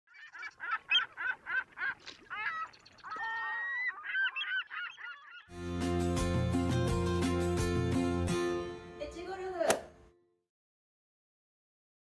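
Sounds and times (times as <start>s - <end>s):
bird calling: 0.1s - 5.5s
music: 5.5s - 10.4s.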